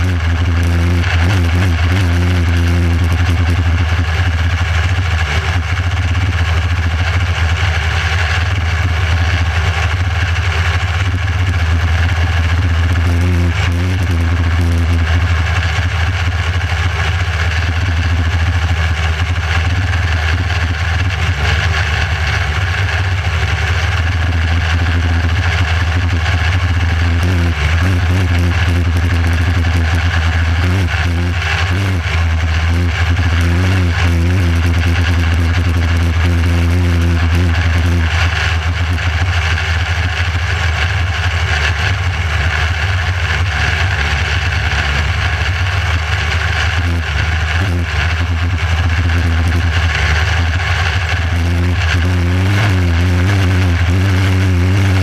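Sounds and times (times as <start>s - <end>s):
motorcycle engine running hard: 0.0s - 55.0s.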